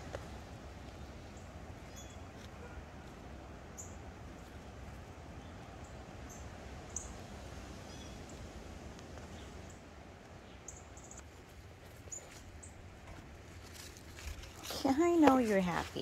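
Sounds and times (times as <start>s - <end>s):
low outdoor rumble: 0.0s - 16.0s
small birds chirping: 0.9s - 2.5s, 5.3s - 8.4s, 9.2s - 11.3s.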